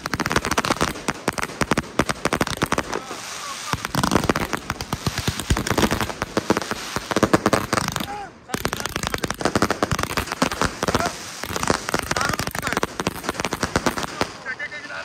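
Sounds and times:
fireworks firing rapid shots: 0.0s - 14.6s.

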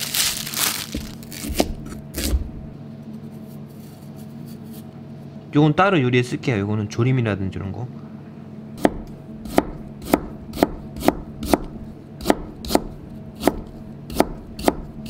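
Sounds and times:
knife chopping on cutting board: 0.9s - 2.6s, 8.8s - 15.0s.

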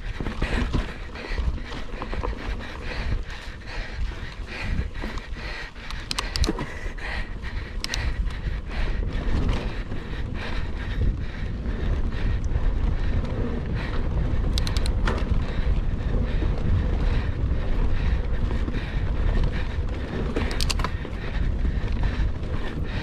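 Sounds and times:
mountain bike rattling: 0.0s - 23.0s
wind buffeting microphone: 0.0s - 23.0s
sharp clicks: 5.0s - 6.7s, 7.7s - 8.4s, 14.4s - 15.2s, 20.4s - 21.0s.

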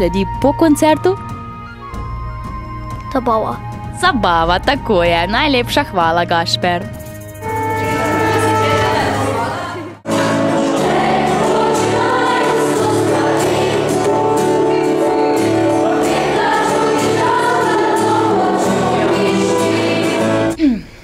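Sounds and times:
electric keyboard: 7.0s - 20.6s
children's choir singing: 7.4s - 20.6s.

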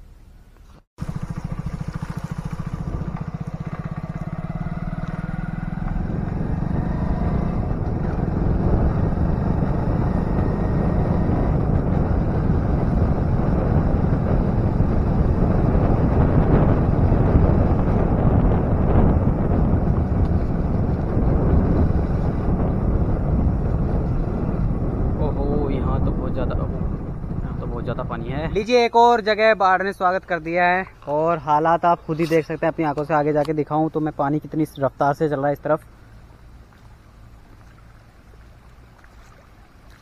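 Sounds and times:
motorcycle engine running: 0.7s - 29.2s
wind on microphone: 1.2s - 29.1s.

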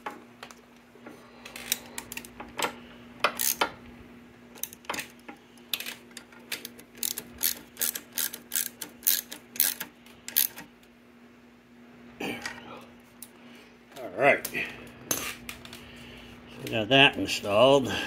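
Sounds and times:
socket ratchet clicking: 5.7s - 10.7s.

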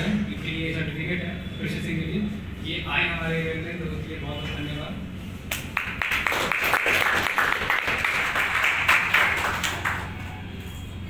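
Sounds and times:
audience applauding: 5.5s - 10.3s.

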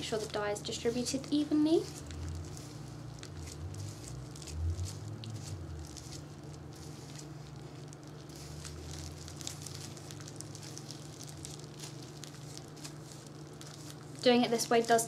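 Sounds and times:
comb crackling through damp hair: 0.0s - 15.0s
steady low hum: 0.0s - 15.0s.

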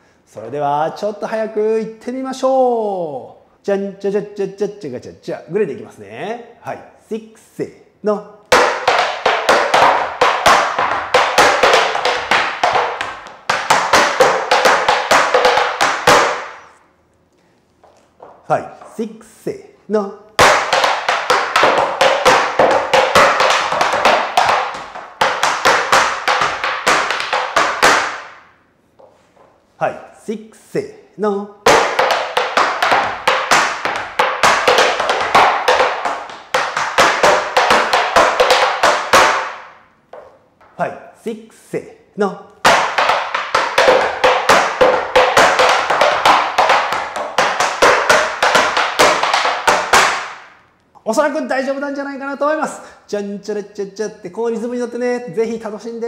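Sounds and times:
tap shoes on wooden board: 8.5s - 16.7s, 17.8s - 19.0s, 20.4s - 28.4s, 31.6s - 40.7s, 42.6s - 50.5s.

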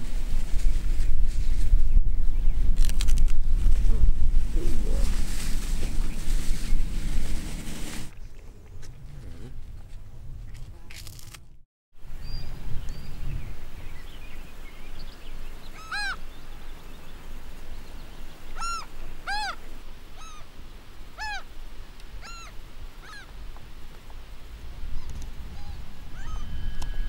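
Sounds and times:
bird honking calls: 15.7s - 16.2s, 18.6s - 19.6s.

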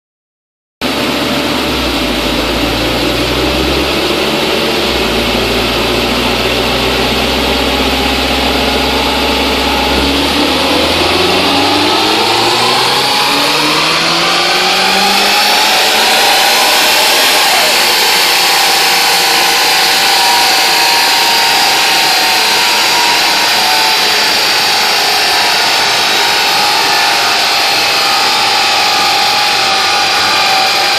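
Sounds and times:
car engine revving on a dyno: 0.8s - 30.9s.

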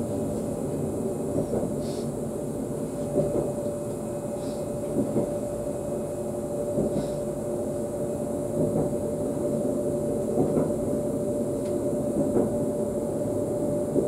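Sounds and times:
train running rumble: 0.0s - 14.0s.

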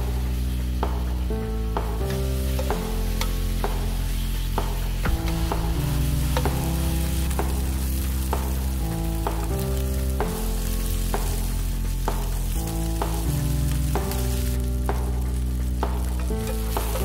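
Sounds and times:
background music with chords and bass: 0.0s - 17.0s
meat sizzling in a pan: 1.8s - 17.0s.

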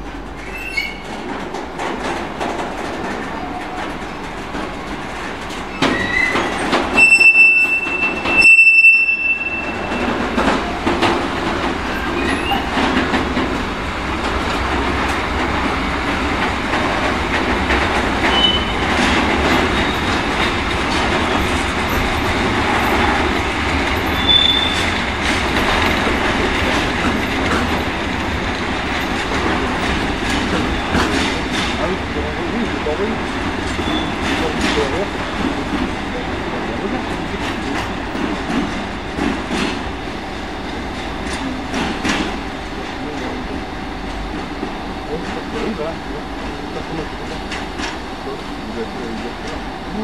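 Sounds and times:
rail-joint clicks: 0.0s - 49.7s
train wheels rumbling on rails: 0.0s - 50.0s
faint wheel squeals: 0.4s - 1.0s, 24.2s - 24.8s.

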